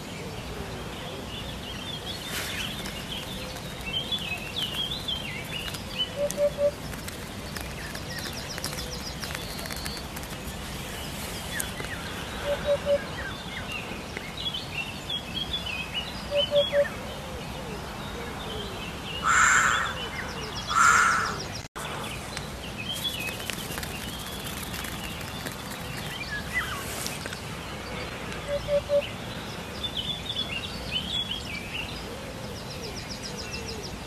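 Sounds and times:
small birds twittering: 0.0s - 34.0s
hoopoe calling: 2.0s - 10.4s, 11.5s - 13.4s, 16.3s - 21.4s, 28.3s - 29.1s.

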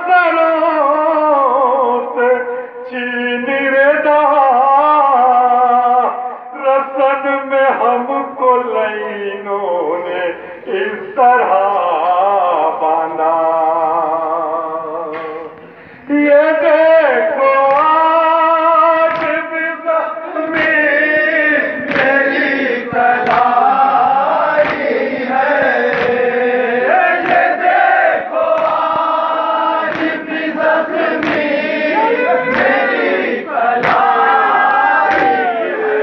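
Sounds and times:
men chanting a lament: 0.0s - 36.0s
chest-beating slaps: 19.1s - 19.4s, 20.6s - 21.0s, 21.8s - 26.5s, 27.1s - 29.2s, 29.8s - 33.2s, 33.8s - 34.2s, 35.0s - 35.4s.

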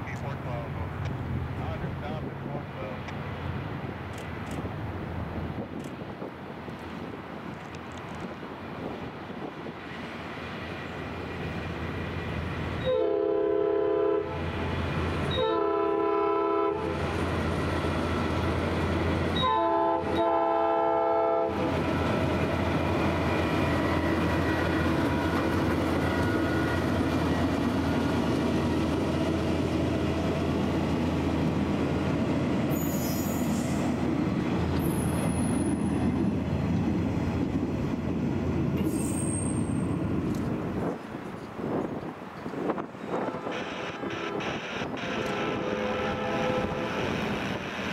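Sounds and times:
rail vehicle rumbling and clattering: 0.0s - 16.0s, 16.6s - 47.9s
air horn blasts: 12.8s - 14.4s, 15.3s - 16.9s, 19.4s - 21.6s, 43.4s - 47.2s
high-pitched wheel squeals: 38.8s - 40.0s.

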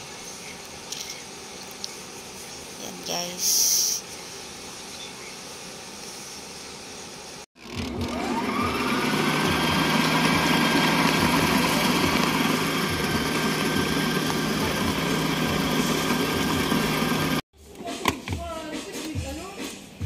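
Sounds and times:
stand mixer motor whine: 7.6s - 17.4s.

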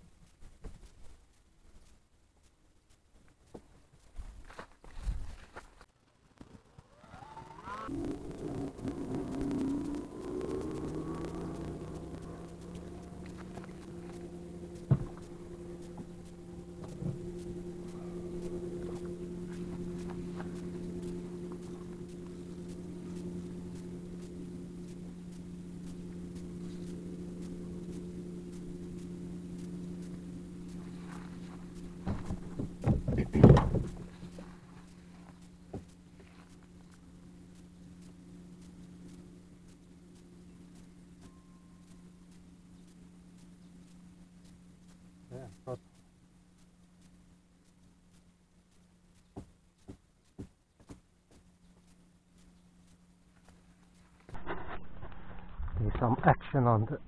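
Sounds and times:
engine drone: 4.5s - 57.0s
sharp knocks and thumps: 14.9s - 15.3s, 32.0s - 34.1s.

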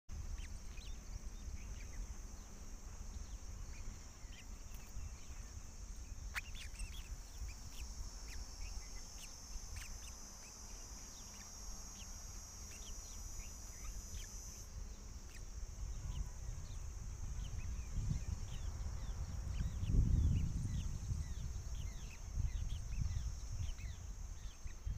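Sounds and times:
insects droning: 0.1s - 24.9s
high bird chirps: 6.3s - 16.3s
wind rumble on microphone: 12.2s - 24.9s.

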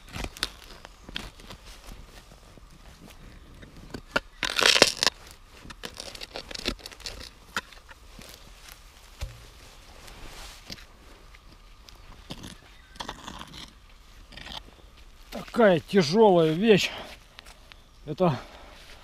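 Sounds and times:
soil crumbling: 0.0s - 16.8s
short knocks: 9.2s - 9.6s.

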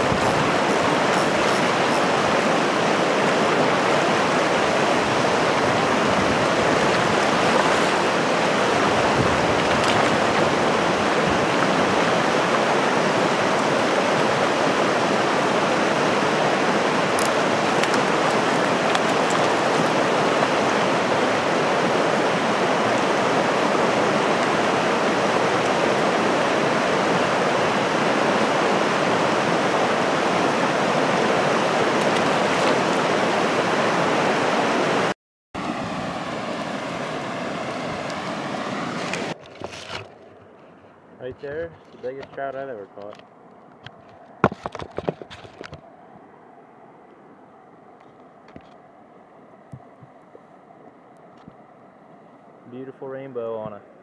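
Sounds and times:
river flowing over stones: 0.0s - 40.5s.

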